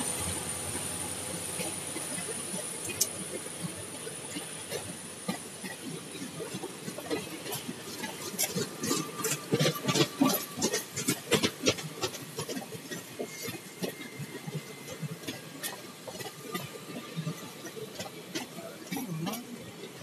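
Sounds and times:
train wheels clattering over rail joints: 4.7s - 20.0s.

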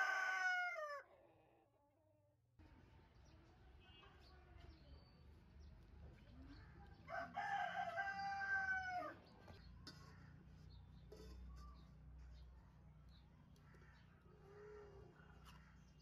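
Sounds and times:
rooster crowing: 0.0s - 1.0s, 7.1s - 9.2s.

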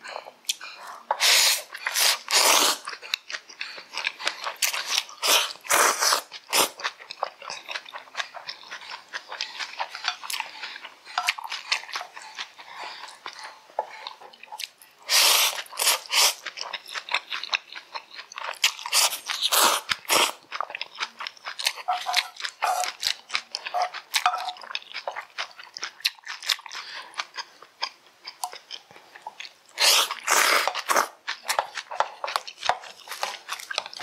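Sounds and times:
slurping noodles: 1.1s - 2.9s, 4.7s - 6.8s, 15.1s - 16.4s, 18.9s - 20.4s, 29.8s - 31.2s.

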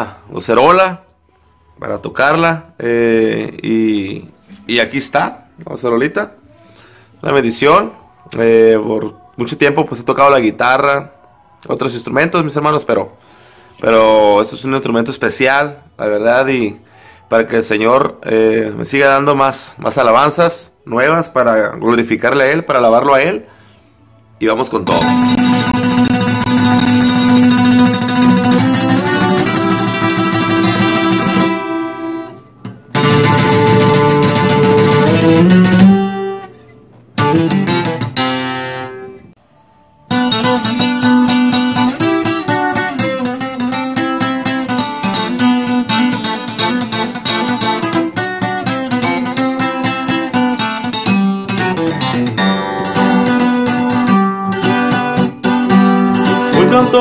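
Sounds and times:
twelve-string guitar strummed chords: 4.2s - 5.8s, 24.8s - 39.3s, 40.1s - 57.0s.

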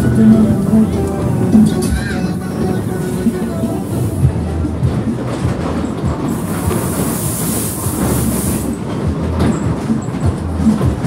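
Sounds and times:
ride cars rumbling on track: 0.0s - 11.0s
hiss: 6.3s - 8.9s.

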